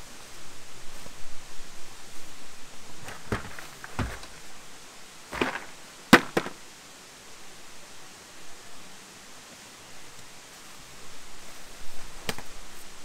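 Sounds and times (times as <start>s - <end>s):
cooler knocking and bumping: 3.0s - 4.4s, 5.3s - 6.6s.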